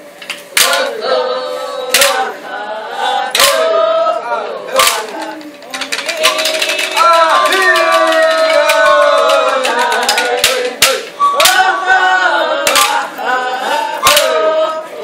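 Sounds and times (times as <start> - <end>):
voices singing a chant-like song: 0.5 - 15.0
sharp percussive strikes: 5.9 - 11.8, 12.6 - 13.0.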